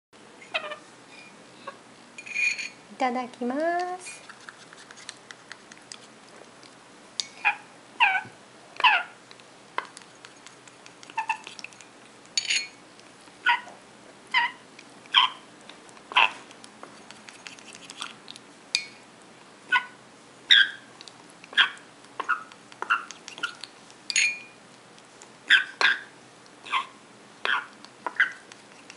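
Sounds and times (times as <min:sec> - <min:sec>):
parrot chick squeaky begging calls: 0:00.4 - 0:00.8, 0:14.3 - 0:14.6, 0:19.7 - 0:20.9, 0:25.5 - 0:26.1.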